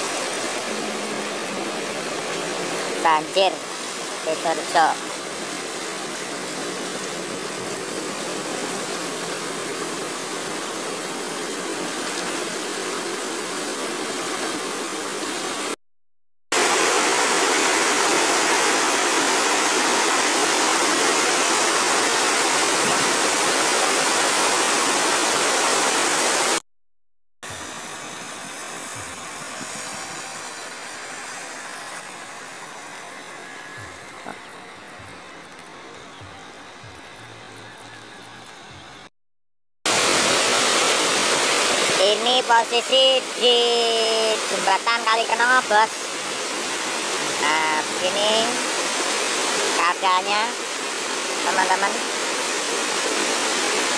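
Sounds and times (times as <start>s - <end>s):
floodwater rushing: 0.0s - 15.8s, 16.6s - 26.6s, 27.4s - 39.1s, 39.9s - 53.9s.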